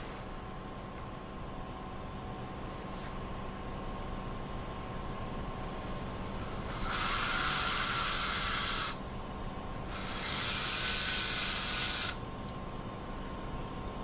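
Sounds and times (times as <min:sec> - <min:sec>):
cordless drill boring wood: 0:06.6 - 0:09.0, 0:09.9 - 0:12.2.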